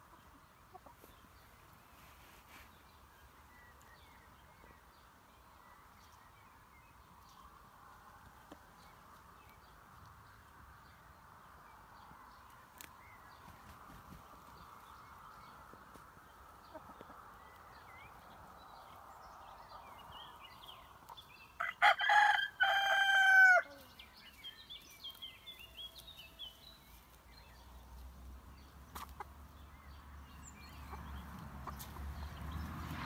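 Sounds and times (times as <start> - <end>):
rooster crowing: 21.6 - 23.8.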